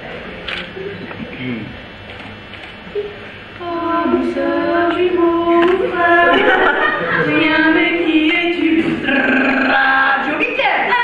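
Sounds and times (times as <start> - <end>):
two women singing: 3.6 - 11.0.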